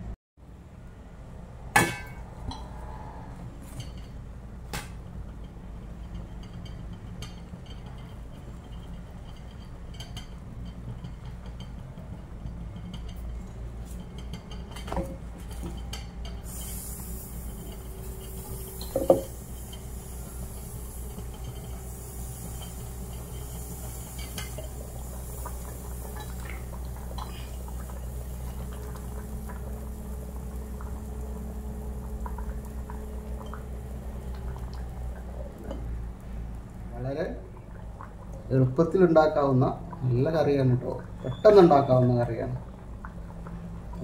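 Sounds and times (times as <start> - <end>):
steady low hum: 0.0 - 41.3
metal pots and lid clanking: 6.0 - 29.0.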